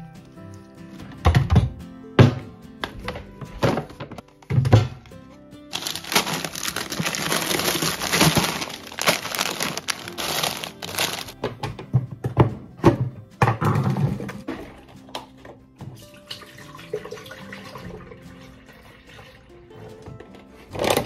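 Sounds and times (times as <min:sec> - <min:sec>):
background music: 0:00.0 - 0:21.0
plastic bags crinkling: 0:05.7 - 0:11.4.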